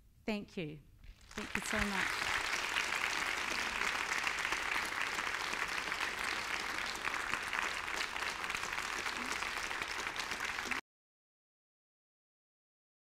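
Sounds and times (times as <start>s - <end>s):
audience applauding: 1.2s - 10.8s.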